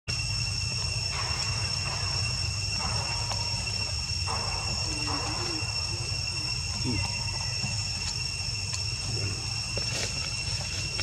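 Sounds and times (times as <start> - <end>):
insects droning: 0.1 - 11.0.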